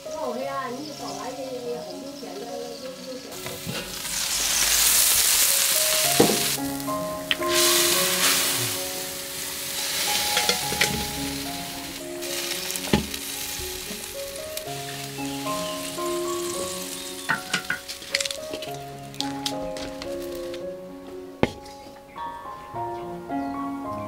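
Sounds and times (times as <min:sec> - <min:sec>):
soft background music: 0:00.0 - 0:24.0
liquid bubbling and sizzling in a wok: 0:03.5 - 0:06.6.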